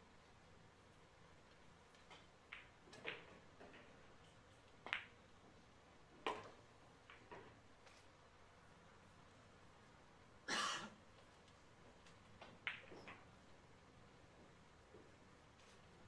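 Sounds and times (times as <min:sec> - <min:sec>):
pool balls clicking: 0:01.9 - 0:05.4, 0:06.1 - 0:08.0, 0:11.2 - 0:16.0.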